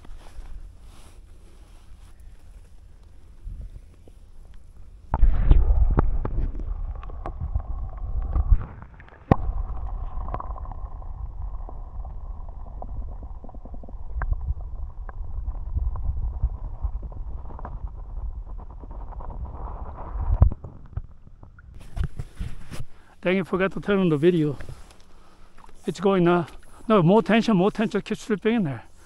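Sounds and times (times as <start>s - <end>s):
underwater river gurgling: 2.9s - 19.0s, 19.9s - 29.0s.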